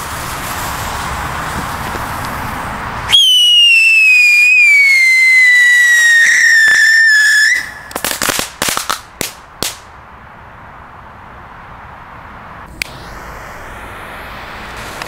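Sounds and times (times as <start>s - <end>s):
firework cracks: 0.0s - 10.0s, 12.7s - 15.0s
firework whistle sliding down: 3.1s - 8.0s
fuse hissing: 12.7s - 15.0s.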